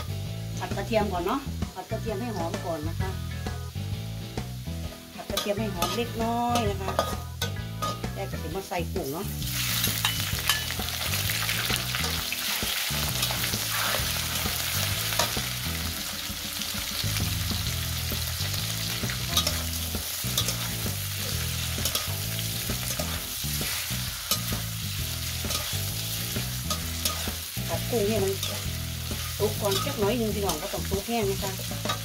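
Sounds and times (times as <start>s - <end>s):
shrimp sizzling in hot oil: 0.0s - 32.0s
metal spatula scraping pan: 5.3s - 8.4s, 9.5s - 15.4s, 18.8s - 32.0s.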